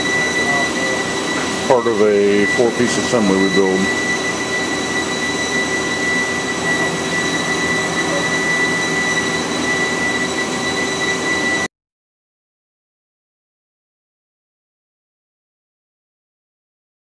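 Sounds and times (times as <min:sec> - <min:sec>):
machinery humming with high whine: 0:00.0 - 0:11.7.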